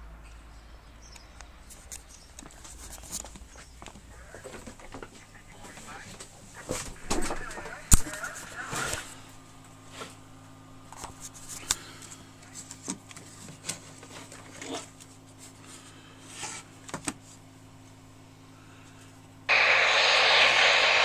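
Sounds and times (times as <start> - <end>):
steady low hum: 0.0 - 13.4, 17.4 - 21.0
loud radio static hiss: 4.1 - 9.4, 19.5 - 21.0.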